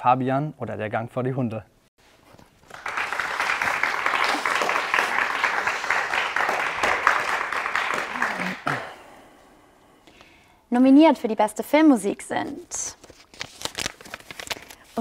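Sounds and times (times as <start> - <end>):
hand clapping applause: 2.4 - 9.0.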